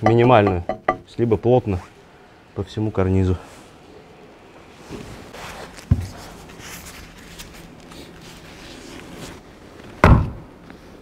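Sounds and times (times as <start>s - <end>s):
shuffling and handling noise: 4.6s - 10.0s
sledgehammer hitting wood: 10.0s - 10.4s.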